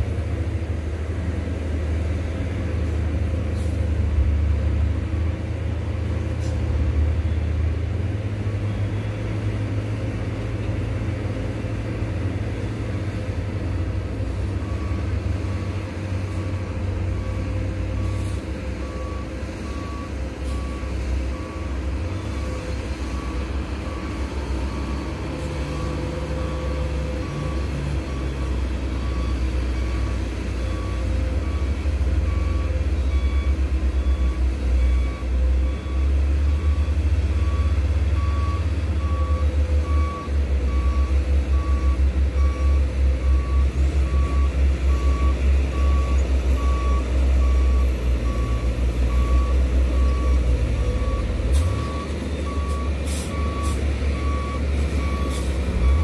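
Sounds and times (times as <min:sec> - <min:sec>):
diesel truck engine rumbling: 0:00.0 - 0:56.0
reversing alarm beeping: 0:14.6 - 0:56.0.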